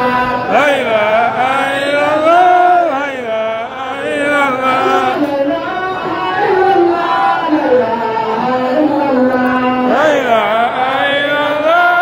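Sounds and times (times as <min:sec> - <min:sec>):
person chanting: 0:00.0 - 0:05.6, 0:08.4 - 0:12.0.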